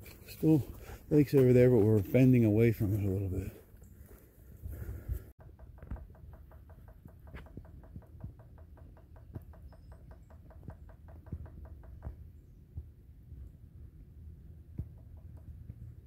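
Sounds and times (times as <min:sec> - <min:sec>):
woodpecker tapping on tree: 0:05.4 - 0:12.2, 0:14.8 - 0:15.9.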